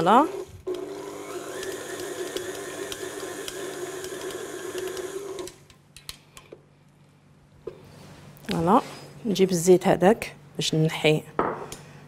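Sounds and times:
stand mixer motor hum: 0.0 - 5.6.

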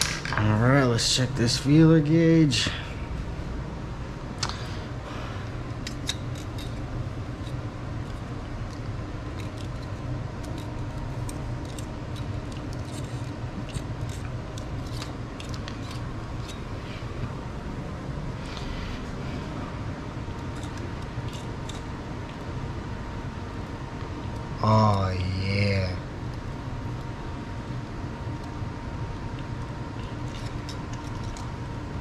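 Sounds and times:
steady low hum: 0.0 - 32.0
metallic clicks and scrapes: 5.7 - 16.7, 20.4 - 21.9, 30.0 - 31.5.

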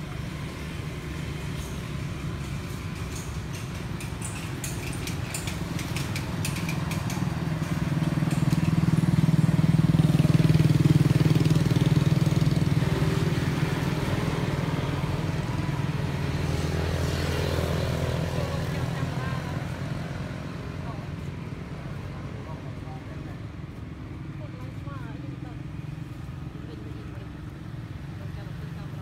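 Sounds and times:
passing vehicle engine hum: 0.0 - 29.0.

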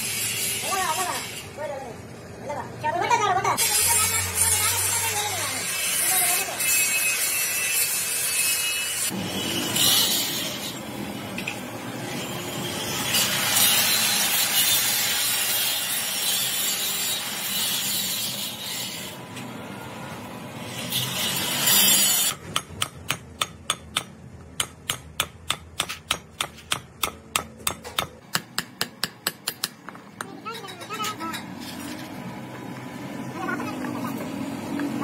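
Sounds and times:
hammer tapping metal: 22.3 - 31.5
rough scraping and rubbing: 30.6 - 32.3.

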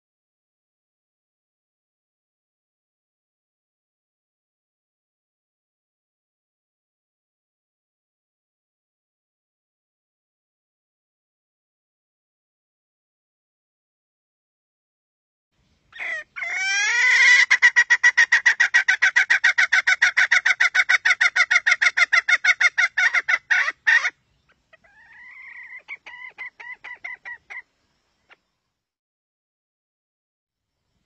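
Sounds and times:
hen cackling: 15.9 - 27.7.

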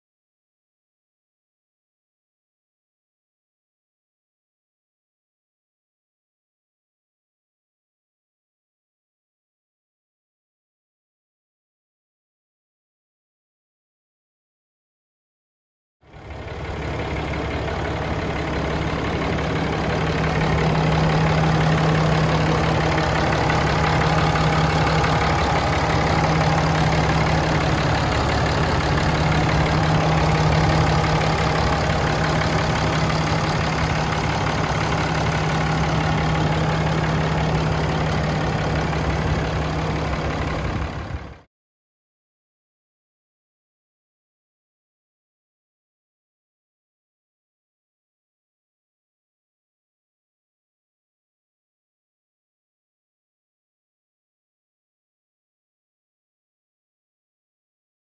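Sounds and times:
diesel engine idling: 16.1 - 41.5.

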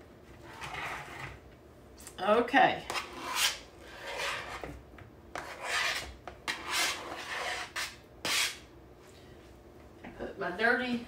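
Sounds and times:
knife scraping plastic cutting board: 2.9 - 4.8, 5.4 - 8.6.

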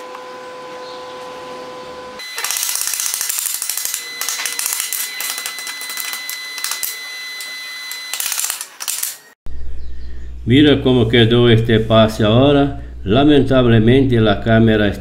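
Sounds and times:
high whine: 0.0 - 15.0
welding arc crackling: 2.2 - 9.4.

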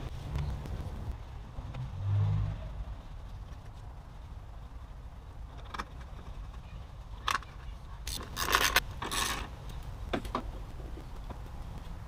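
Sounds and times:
parts clattering and scraping: 7.2 - 9.6.

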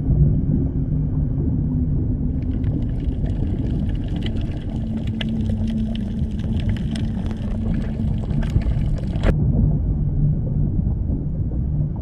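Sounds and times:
held low tone: 0.0 - 12.0
low underwater rumble: 0.0 - 12.0
sharp crackling clicks: 2.3 - 9.3.

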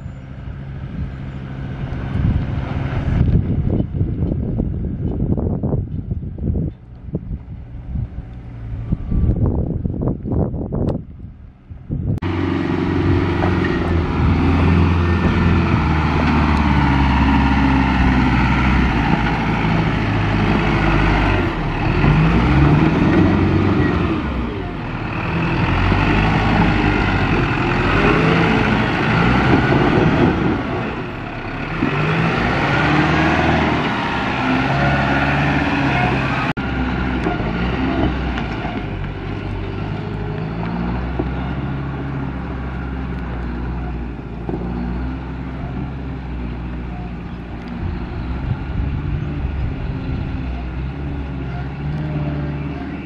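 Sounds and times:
off-road vehicle engines under load: 0.0 - 53.0
truck turbo-diesel engine revving: 12.1 - 53.0.

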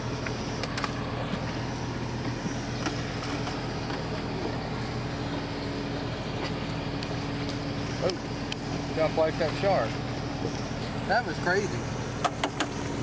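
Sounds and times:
boat engine humming: 0.0 - 13.0
wind and water noise: 0.0 - 13.0.

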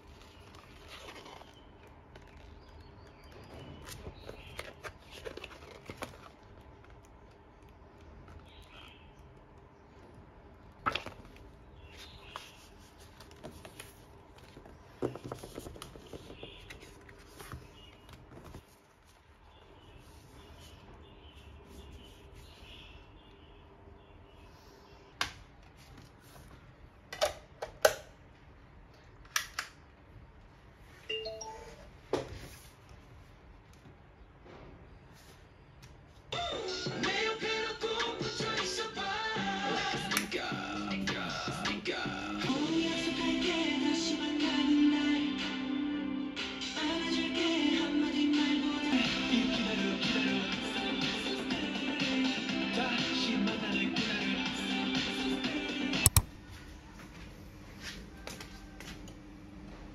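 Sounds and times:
paper pages rustling: 0.0 - 7.8, 10.8 - 19.3.

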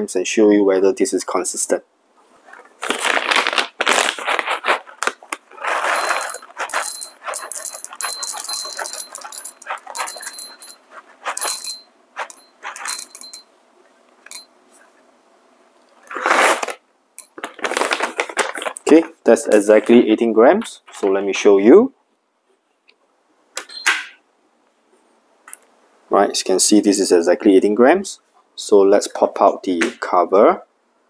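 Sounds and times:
coffee beans rattling into cup: 2.9 - 13.5.

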